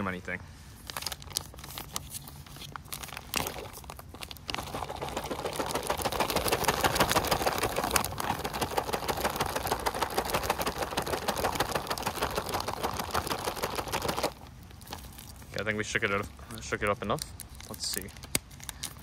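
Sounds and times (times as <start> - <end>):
plastic pouch crinkling: 0.8 - 19.0
water sloshing in pouch: 3.1 - 15.4.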